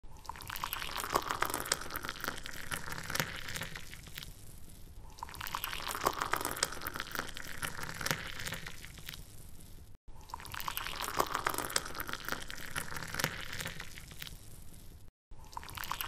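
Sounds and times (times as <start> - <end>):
water splashing and trickling: 0.1 - 4.3, 10.2 - 14.5, 15.4 - 16.0.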